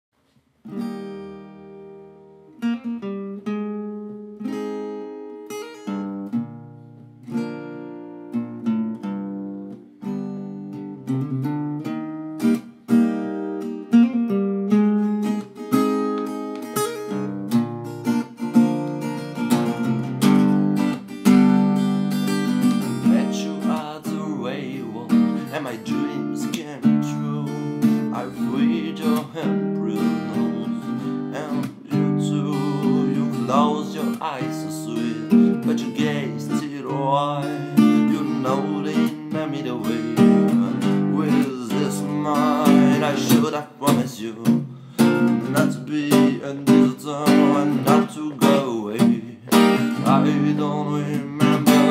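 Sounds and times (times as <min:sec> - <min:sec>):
acoustic guitar strumming chords: 0:00.6 - 0:51.9
person singing: 0:22.3 - 0:51.9.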